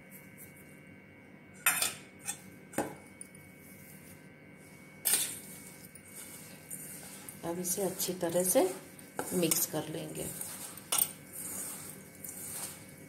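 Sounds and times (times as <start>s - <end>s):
utensils clinking against steel bowl: 1.6s - 3.3s, 8.0s - 12.8s.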